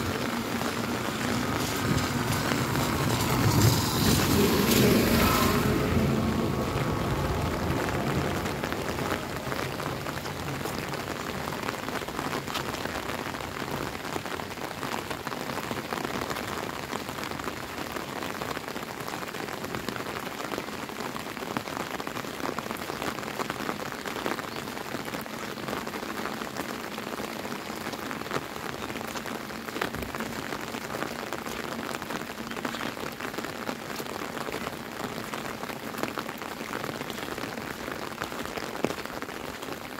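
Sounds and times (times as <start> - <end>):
auto-rickshaw engine passing: 0.0 - 10.2
steady rain: 0.0 - 39.9.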